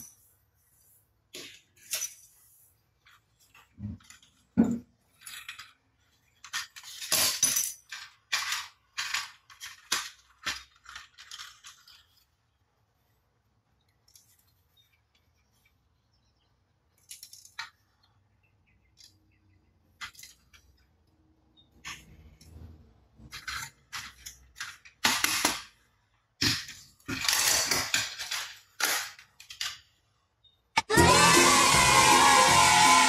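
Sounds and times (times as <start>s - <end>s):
plastic toy clicks and rattles: 5.1s - 12.4s, 23.3s - 25.8s, 26.4s - 30.0s.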